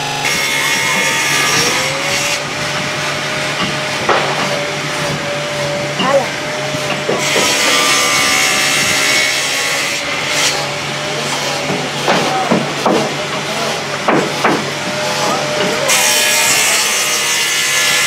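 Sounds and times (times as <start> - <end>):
power saw cutting wood: 0.0 - 18.0.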